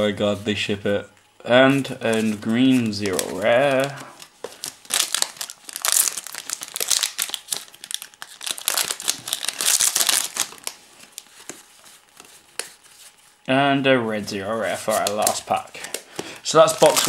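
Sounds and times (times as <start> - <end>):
foil wrappers crinkling: 1.8 - 13.0, 14.7 - 17.0.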